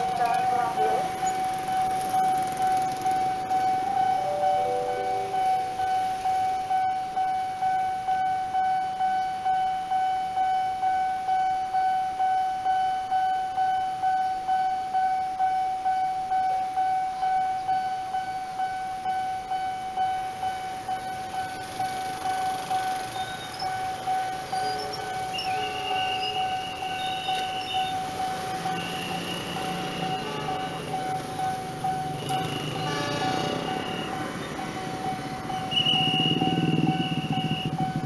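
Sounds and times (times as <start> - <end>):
motorcycle engines: 0.0 - 6.3, 20.3 - 38.0
level crossing warning bell: 0.0 - 38.0.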